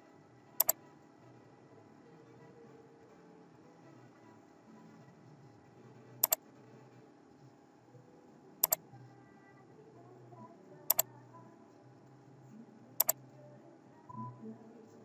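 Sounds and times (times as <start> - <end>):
faint low hum: 0.0 - 15.0
computer mouse clicking: 10.9 - 11.1.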